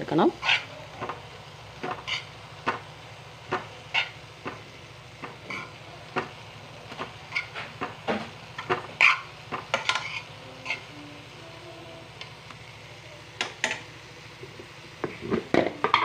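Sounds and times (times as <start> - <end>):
low steady hum: 0.0 - 16.0
spoon scraping pan: 0.4 - 1.2, 1.8 - 2.8, 3.5 - 4.6, 5.2 - 6.3, 6.9 - 10.9.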